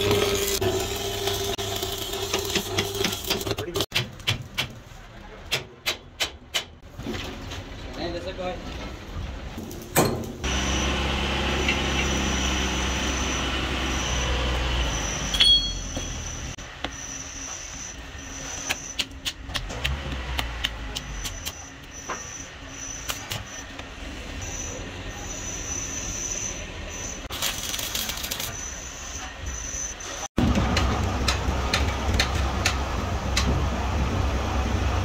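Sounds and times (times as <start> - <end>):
sharp metal clank: 9.9 - 10.4, 15.3 - 16.2.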